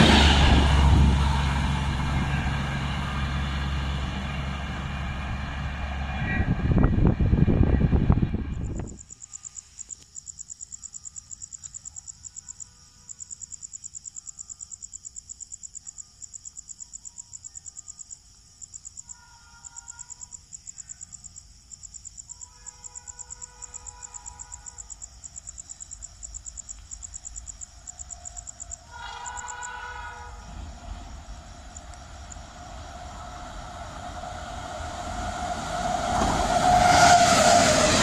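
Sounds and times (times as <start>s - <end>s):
faint low rumble: 0.0s - 9.1s, 30.3s - 36.5s
crickets chirping: 6.7s - 38.0s.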